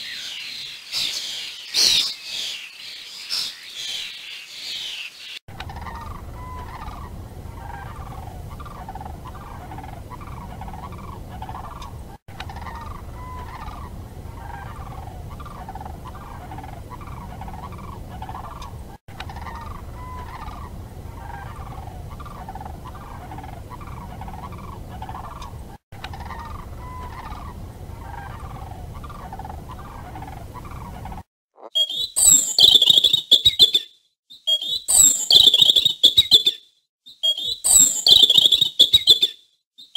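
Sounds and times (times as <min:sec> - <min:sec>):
shrill high chirping: 0:31.7 - 0:39.9.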